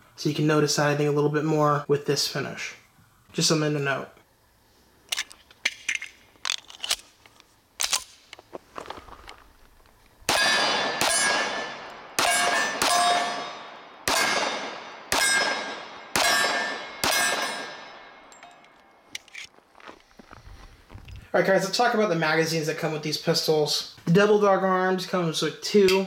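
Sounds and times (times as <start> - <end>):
pistol shots: 10.3 - 18.4
steel plates ringing: 10.3 - 19.0.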